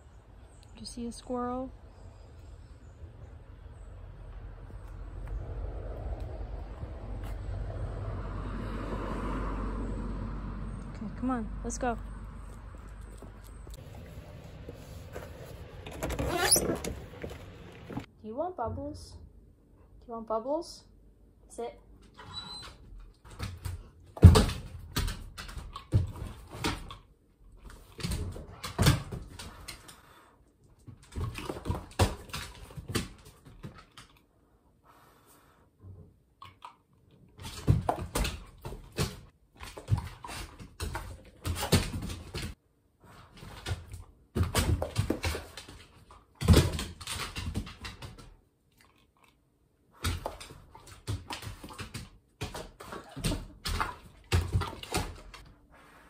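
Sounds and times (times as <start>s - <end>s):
dog claws clicking and scrabbling: 43.6s - 49.4s, 50.0s - 55.4s.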